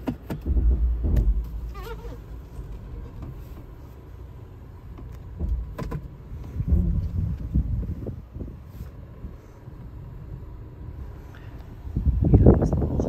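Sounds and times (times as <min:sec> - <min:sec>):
knocks and clicks: 0:00.0 - 0:03.7, 0:04.9 - 0:07.9
car engine rumble inside cabin: 0:00.0 - 0:13.0.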